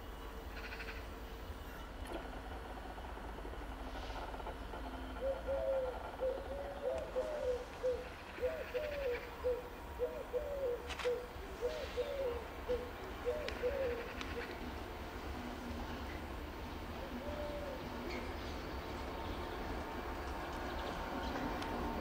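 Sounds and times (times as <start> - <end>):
pigeon cooing: 5.2 - 14.6, 17.0 - 17.9.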